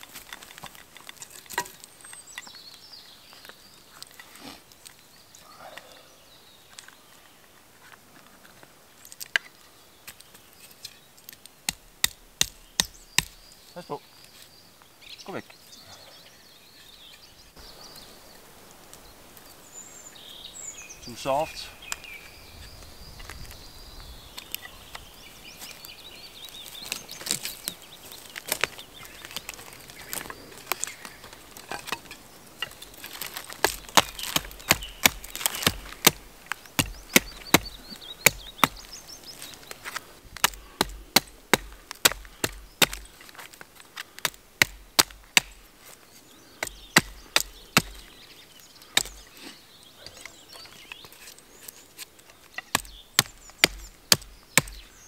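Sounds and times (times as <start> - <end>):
hatchet chopping wooden stick: 11.3 - 13.5, 33.5 - 38.9, 40.4 - 43.1, 44.1 - 45.7, 46.6 - 48.0, 49.0 - 49.2, 52.6 - 54.9.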